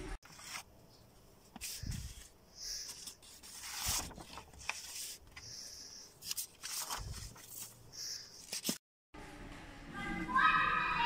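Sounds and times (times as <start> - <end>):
paper sheets rustling: 0.2 - 0.7, 1.5 - 8.8.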